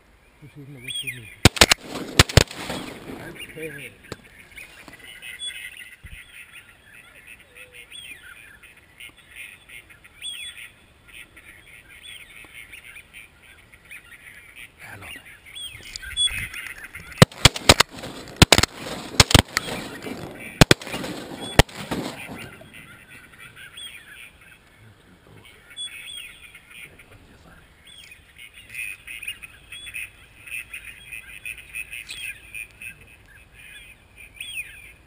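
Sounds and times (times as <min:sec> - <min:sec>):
ducks honking and quacking: 0:00.4 - 0:35.0
loud sharp cracks: 0:01.4 - 0:04.4, 0:17.2 - 0:22.9.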